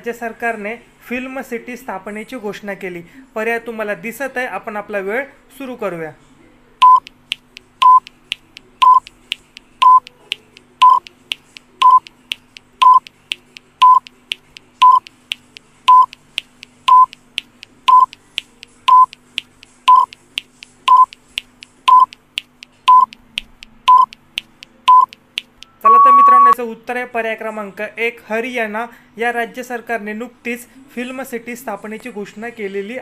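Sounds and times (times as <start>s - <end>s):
short electronic beeps: 6.8s - 7.1s, 7.8s - 8.0s, 8.8s - 9.1s, 9.8s - 10.1s, 10.8s - 11.0s, 11.8s - 12.0s, 12.8s - 13.0s, 13.8s - 14.0s, 14.8s - 15.0s, 15.9s - 16.1s, 16.9s - 17.1s, 17.9s - 18.1s, 18.9s - 19.1s, 19.9s - 20.1s, 20.9s - 21.1s, 21.9s - 22.1s, 22.9s - 23.1s, 23.9s - 24.1s, 24.9s - 25.1s, 25.7s - 26.6s
soft high ticks: 6.8s - 26.6s.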